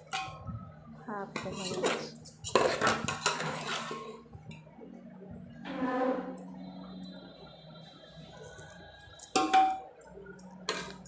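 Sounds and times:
metal spoon scraping a pot: 0:01.3 - 0:04.3, 0:10.4 - 0:11.0.

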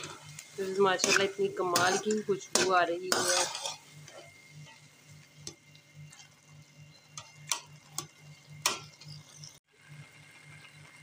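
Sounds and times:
metal spoon scraping a pan: 0:00.0 - 0:09.6
faint sizzle: 0:00.0 - 0:11.0.

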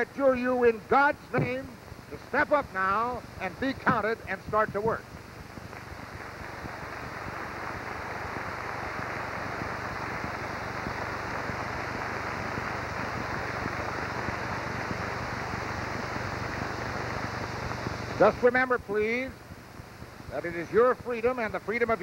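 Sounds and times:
audience applauding: 0:05.8 - 0:15.2.

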